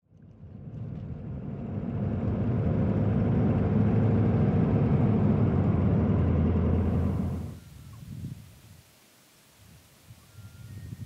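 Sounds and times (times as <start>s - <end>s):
engine and road rumble: 0.0s - 7.9s.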